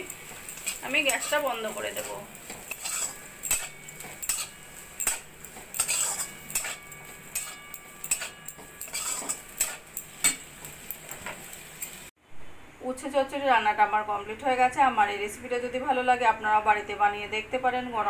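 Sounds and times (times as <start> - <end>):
spatula scraping metal pan: 0.0 - 12.0
faint metallic ring: 3.0 - 10.4.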